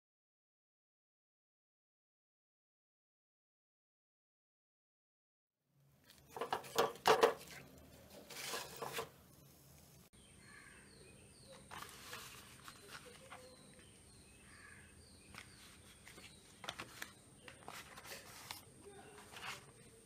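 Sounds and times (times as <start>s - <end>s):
banana leaf crinkling and rustling: 6.0s - 9.1s, 11.5s - 14.0s.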